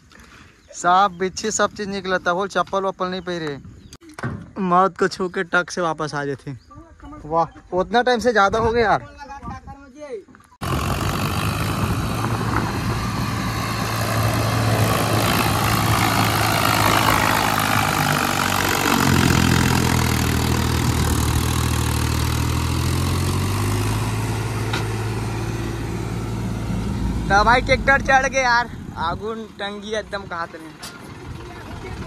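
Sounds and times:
tractor diesel engine under load: 0:10.6 - 0:32.0.

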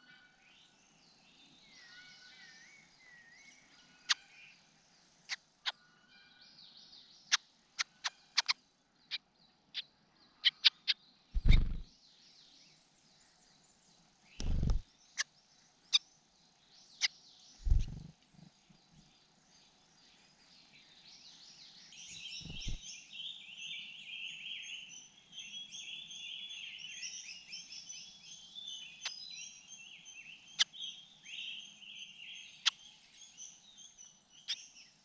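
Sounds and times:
birds singing faintly: 0:00.0 - 0:35.0
short low thumps: 0:11.4 - 0:11.8, 0:14.4 - 0:14.8, 0:17.7 - 0:18.0, 0:22.5 - 0:22.8
sharp clicks: 0:14.4 - 0:14.8.

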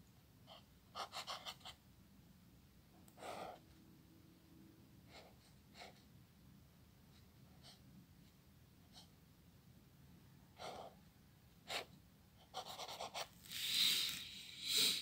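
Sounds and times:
breathy hiss: 0:13.4 - 0:15.0.

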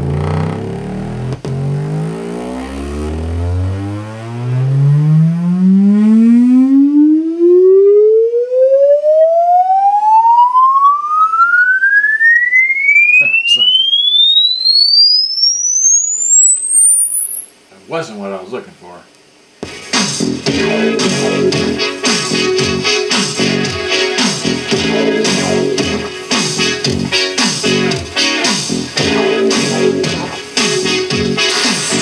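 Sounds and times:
test tone sweeping upward: 0:00.0 - 0:18.5.

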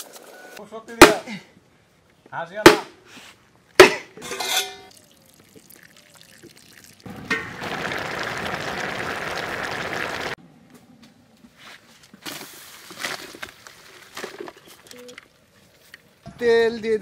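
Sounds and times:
machete striking bamboo: 0:01.0 - 0:01.2, 0:02.7 - 0:03.0, 0:03.8 - 0:04.1
water pouring into a pot: 0:04.9 - 0:10.4.

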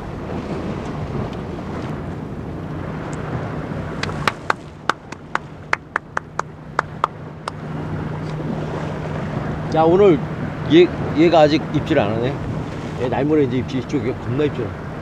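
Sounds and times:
surf washing on rocks: 0:00.0 - 0:15.0
wind buffeting microphone: 0:00.0 - 0:15.0
sharp hand claps: 0:04.0 - 0:07.6.

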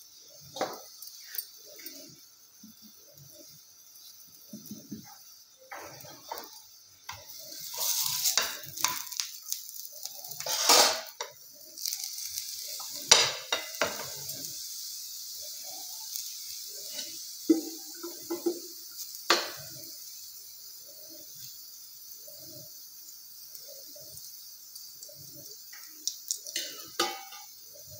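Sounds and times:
flatbread sizzling in a pan: 0:00.0 - 0:27.9
pan and utensil clatter: 0:00.4 - 0:02.8, 0:04.0 - 0:20.2, 0:25.5 - 0:27.9.

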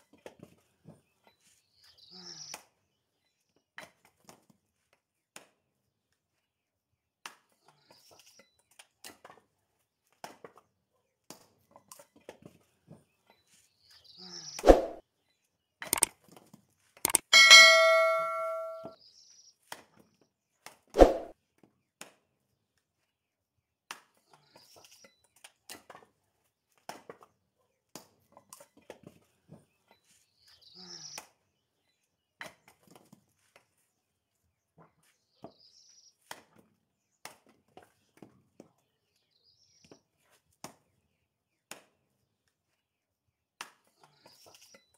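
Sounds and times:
short metallic ring: 0:17.1 - 0:19.0.

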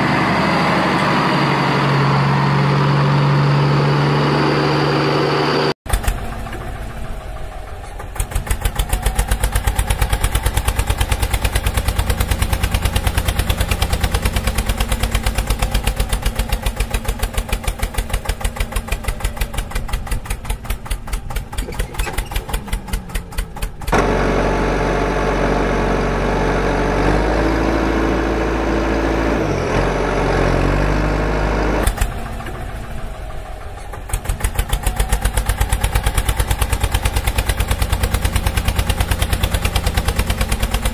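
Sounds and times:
tractor engine thudding: 0:14.9 - 0:27.0.

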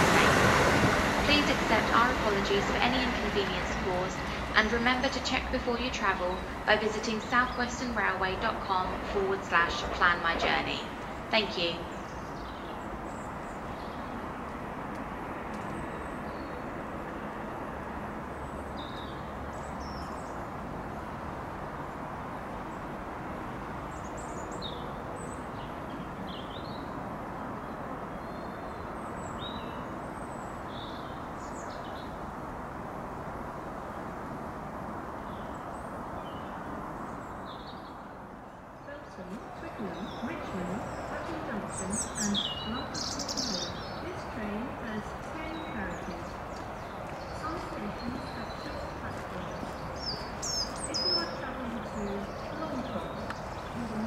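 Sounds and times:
diesel train rumbling: 0:00.0 - 0:13.9, 0:38.8 - 0:54.0
small birds chirping: 0:02.6 - 0:14.2, 0:35.2 - 0:54.0.

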